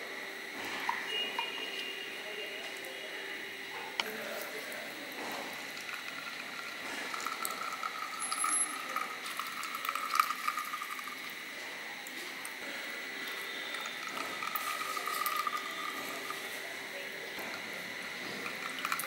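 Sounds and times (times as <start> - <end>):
juice trickling onto chicken: 4.0 - 19.0.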